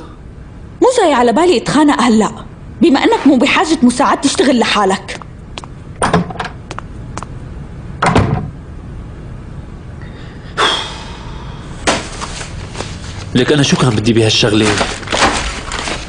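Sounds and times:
light footsteps: 6.5 - 7.4
door slamming shut: 8.0 - 8.5
cardboard folders rustling: 11.9 - 13.4, 14.1 - 16.0.

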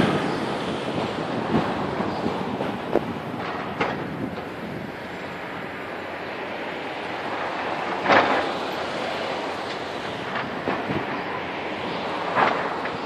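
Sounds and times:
distant excavators: 0.0 - 13.0
wind on microphone: 0.0 - 13.0.

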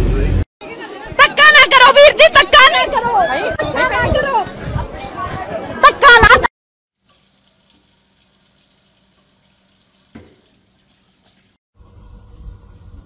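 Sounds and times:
tap water running into sink: 7.0 - 11.6.

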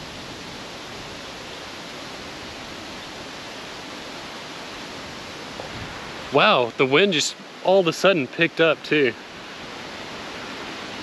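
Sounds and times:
wind rushing through leafy trees: 0.0 - 11.0.

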